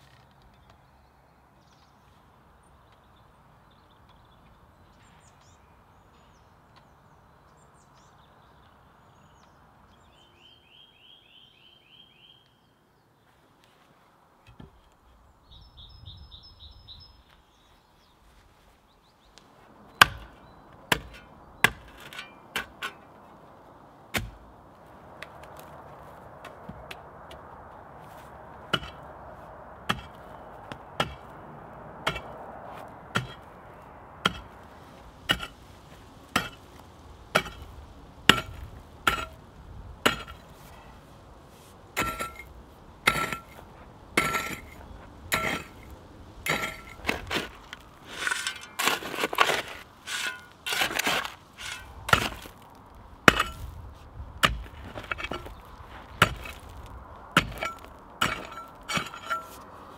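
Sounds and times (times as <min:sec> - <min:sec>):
loose earth scraping: 0:17.4 - 0:31.4, 0:32.0 - 0:59.9
pickaxe striking stony soil: 0:20.0 - 0:23.0, 0:24.1 - 0:24.4, 0:28.7 - 0:29.0, 0:29.9 - 0:31.3, 0:32.1 - 0:33.5, 0:34.2 - 0:34.6, 0:35.3 - 0:35.6, 0:36.3 - 0:39.4, 0:40.0 - 0:40.6, 0:42.0 - 0:59.7.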